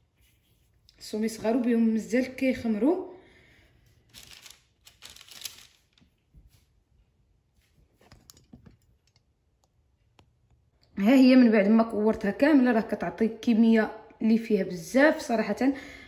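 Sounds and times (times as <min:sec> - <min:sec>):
faint dough rustles: 0:00.0 - 0:02.8, 0:03.5 - 0:08.9.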